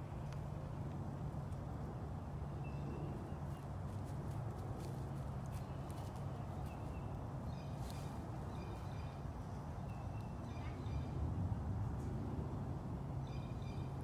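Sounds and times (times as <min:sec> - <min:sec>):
footsteps crunching on dry leaves: 0:03.5 - 0:07.0, 0:07.7 - 0:08.3
small birds chirping: 0:05.2 - 0:11.2.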